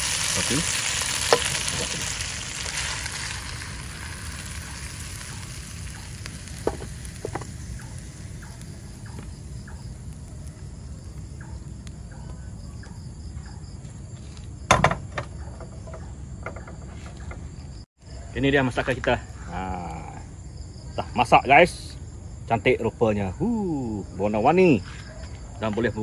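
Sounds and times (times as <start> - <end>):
food sizzling in a wok: 0.0 - 12.1.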